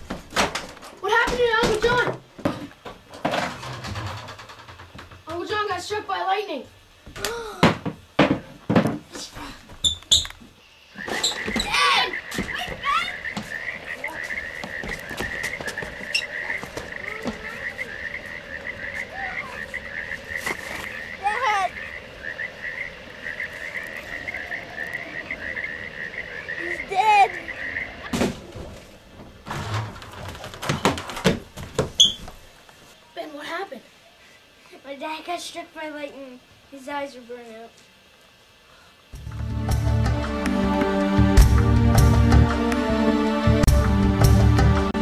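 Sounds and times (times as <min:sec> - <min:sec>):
frogs trilling: 0:09.8 - 0:29.1.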